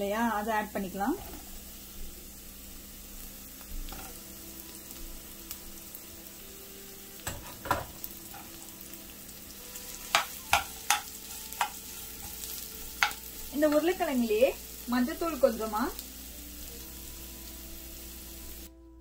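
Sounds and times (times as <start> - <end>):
low sizzle of frying: 0.0 - 19.0
spoon clicking against pan: 10.1 - 11.8, 13.0 - 13.2.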